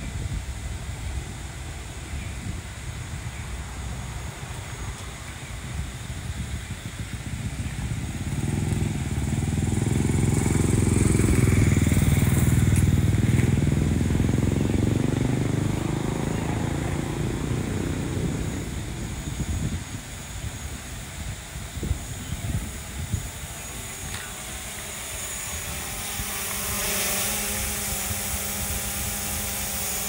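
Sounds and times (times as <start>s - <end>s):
vehicle engine passing by: 7.3s - 19.8s.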